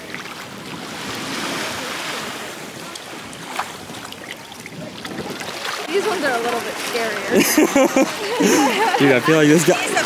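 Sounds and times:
wind on microphone: 0:00.0 - 0:07.5
sea surf washing: 0:00.0 - 0:10.0.

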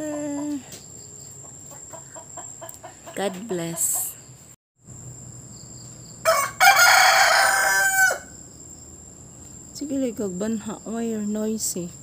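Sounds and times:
rooster crowing: 0:06.2 - 0:08.5.

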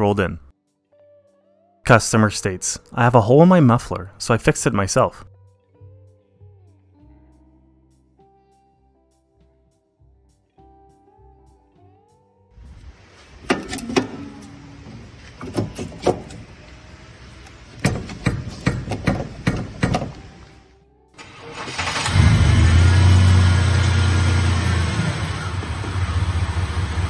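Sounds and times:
metallic knocks and clanks: 0:13.4 - 0:16.6, 0:17.4 - 0:20.5
car engine running: 0:21.2 - 0:27.0.

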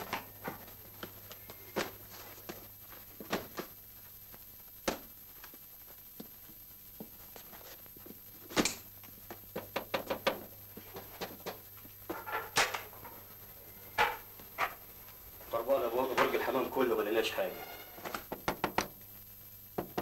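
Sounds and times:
knocking on a door: 0:18.3 - 0:18.9, 0:19.8 - 0:20.0.

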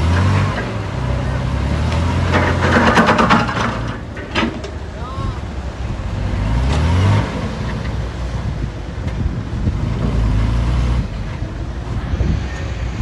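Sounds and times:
diesel engine running: 0:00.0 - 0:13.0
wind buffeting microphone: 0:08.1 - 0:13.0.

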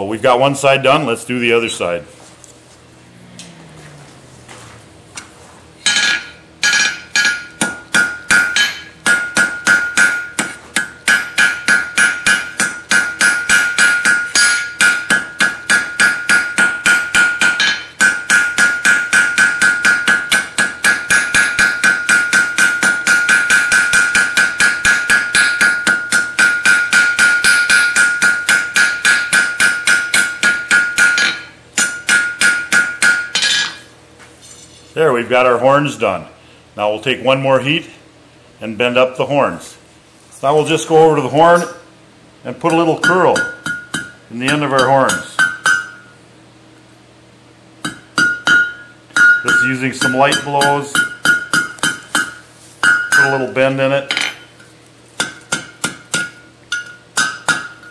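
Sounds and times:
hammer striking steel on anvil: 0:05.8 - 0:33.9, 0:42.7 - 0:46.1, 0:47.8 - 0:54.6, 0:55.2 - 0:57.9.

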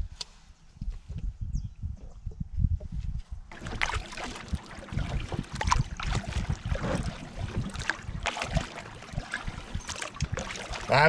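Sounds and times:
paddle splashing water: 0:03.5 - 0:11.0.

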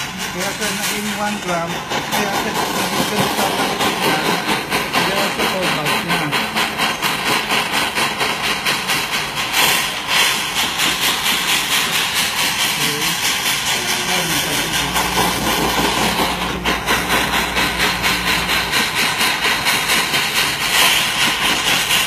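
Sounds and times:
blowtorch flame hissing: 0:00.0 - 0:22.0
low hum: 0:13.6 - 0:20.7.

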